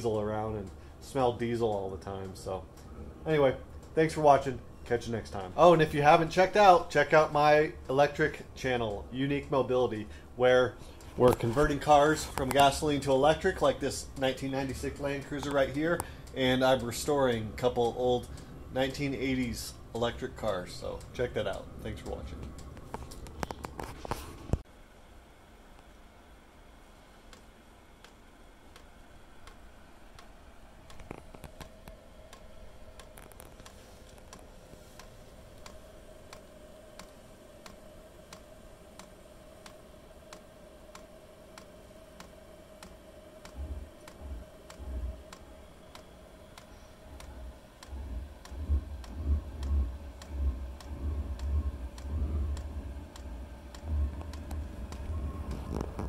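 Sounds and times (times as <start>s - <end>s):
faint fan hum: 0.0s - 56.0s
fuel pump ticking: 41.6s - 55.8s.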